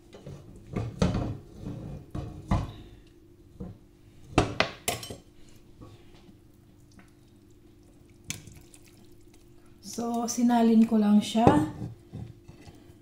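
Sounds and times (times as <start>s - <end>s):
utensil scraping and knocking pot: 0.1s - 2.7s, 11.3s - 13.0s.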